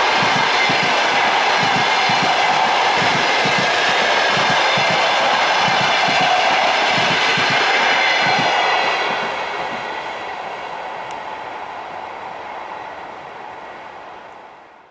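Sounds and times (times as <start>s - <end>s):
train wheels clacking: 0.0s - 11.2s
train rumble: 0.0s - 14.9s.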